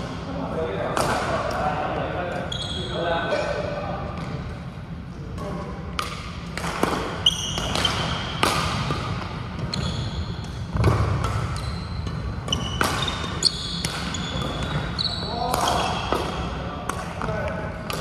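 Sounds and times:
shoes squeaking on court floor: 2.4 - 3.0, 7.2 - 16.2
racket hitting shuttlecock: 6.0 - 14.9.

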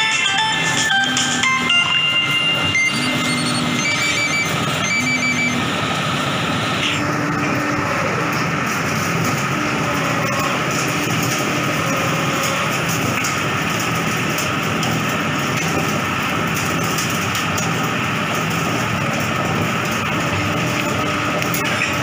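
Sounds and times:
grinder machine whirring: 0.0 - 22.0.

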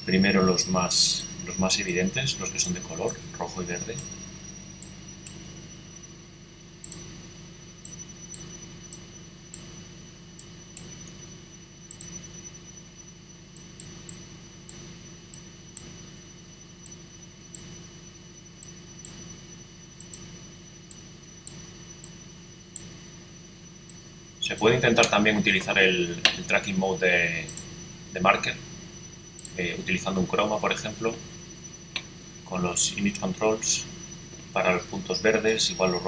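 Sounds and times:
faint steady hum: 0.0 - 36.0
computer mouse clicking: 6.8 - 7.1, 11.9 - 12.2, 13.6 - 15.9, 20.0 - 20.2.

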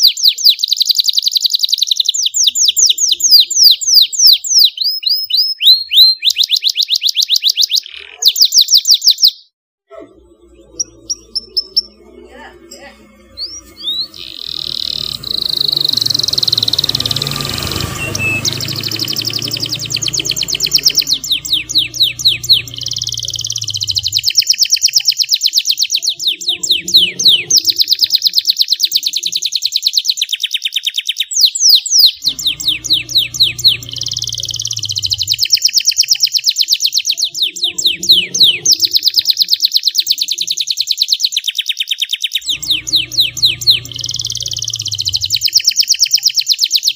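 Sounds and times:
canary singing trills: 0.0 - 9.6, 10.4 - 46.9
low hum: 9.9 - 24.4, 32.2 - 35.5, 42.4 - 45.6.

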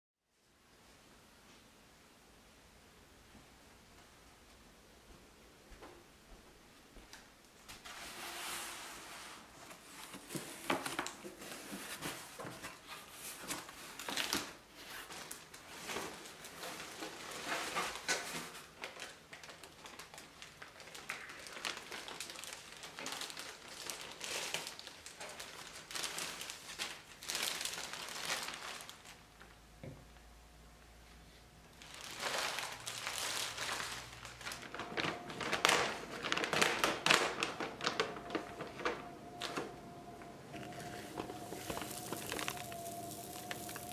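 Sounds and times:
plastic packaging crinkling: 9.8 - 29.6, 31.7 - 43.9.

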